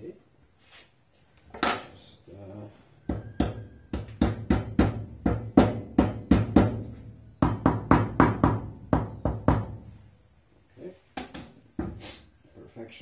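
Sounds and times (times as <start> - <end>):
hammer tapping on acrylic: 3.0 - 9.8.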